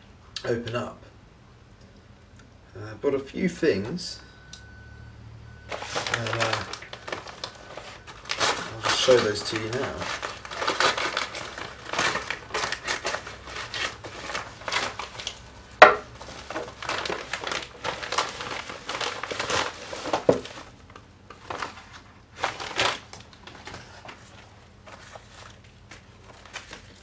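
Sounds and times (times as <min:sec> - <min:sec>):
loud plastic crackle: 0:05.7 - 0:27.0
plastic packaging crinkling: 0:05.7 - 0:27.0.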